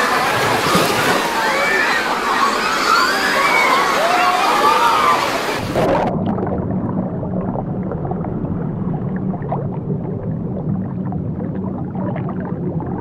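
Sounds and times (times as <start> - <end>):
muffled underwater rumble: 5.6 - 13.0
bubbles ticking: 5.7 - 13.0.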